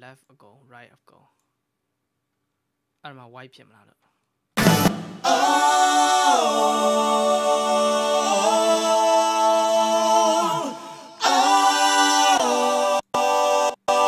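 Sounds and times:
voices singing long chord notes: 4.6 - 14.0.

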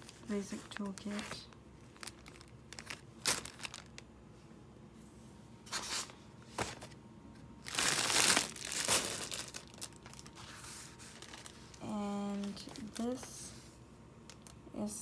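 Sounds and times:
plastic packaging crinkling: 0.0 - 4.1, 7.6 - 13.4.

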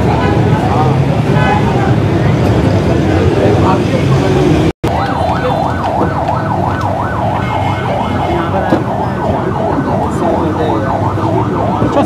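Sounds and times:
steady background noise: 0.0 - 12.0
siren yelping: 4.8 - 12.0.

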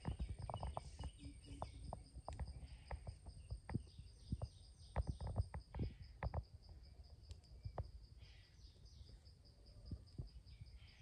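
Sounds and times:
faint bird chirps: 0.0 - 11.0.

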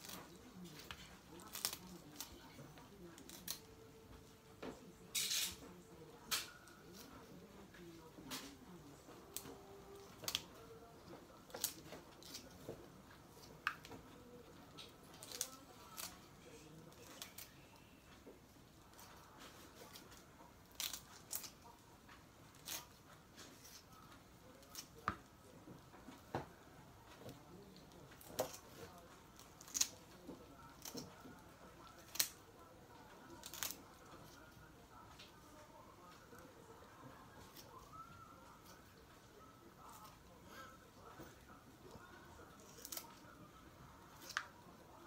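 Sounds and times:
kitchen shears snipping: 5.1 - 7.1, 29.3 - 30.0, 33.4 - 33.9, 42.6 - 43.2
scissors cutting through bone: 20.6 - 21.6, 33.4 - 33.8, 42.6 - 43.2.

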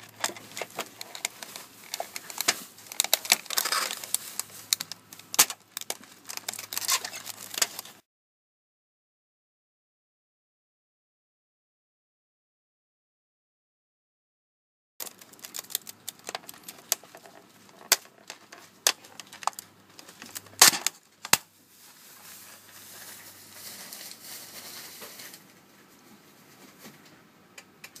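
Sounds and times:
plastic food pack crackling: 0.0 - 8.0, 15.0 - 25.4
plastic pack snapping shut: 0.1 - 8.0, 15.0 - 21.5
faint steady hiss: 15.0 - 28.0.

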